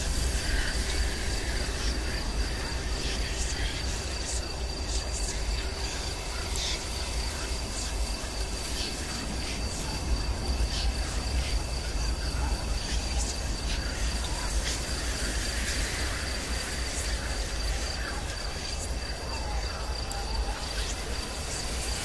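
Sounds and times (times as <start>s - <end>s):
insect-like trill: 0.0s - 22.0s
low rumble and hiss: 0.0s - 22.0s.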